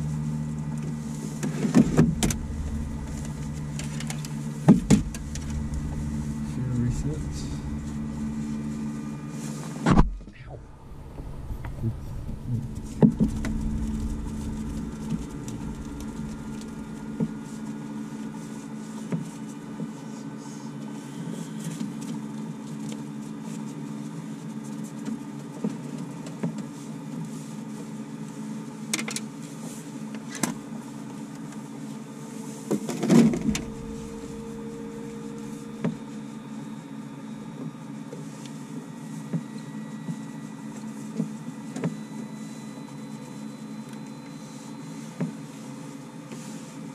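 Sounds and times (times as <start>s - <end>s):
electrical hum: 0.0s - 23.2s, 32.0s - 45.7s
loud knock: 1.8s - 6.6s.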